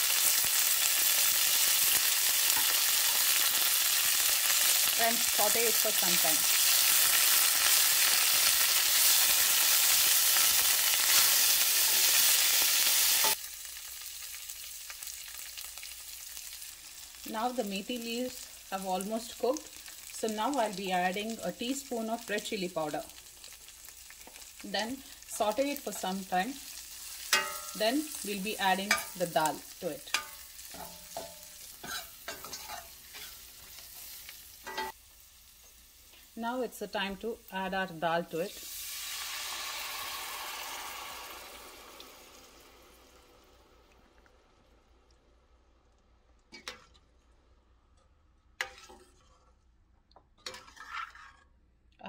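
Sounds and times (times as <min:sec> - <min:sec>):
leaves sizzling in hot oil: 0:00.0 - 0:44.9
steel ladle stirring: 0:27.3 - 0:27.9, 0:28.8 - 0:29.2, 0:30.1 - 0:33.8, 0:50.4 - 0:51.5
metal on metal scrapes: 0:50.4 - 0:51.6.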